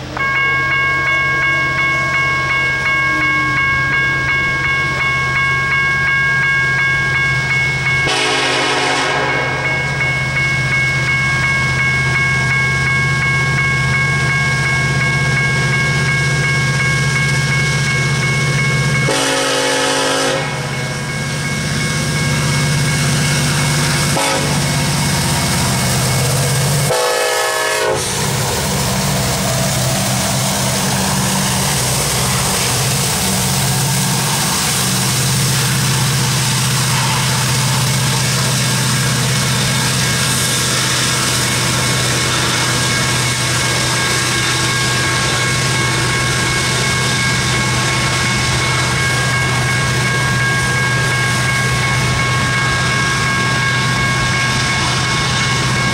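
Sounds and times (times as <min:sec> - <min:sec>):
level crossing warning bell: 0:00.0 - 0:55.9
locomotive horn blasts: 0:08.0 - 0:09.6, 0:19.1 - 0:20.7, 0:24.1 - 0:24.6, 0:26.8 - 0:28.2.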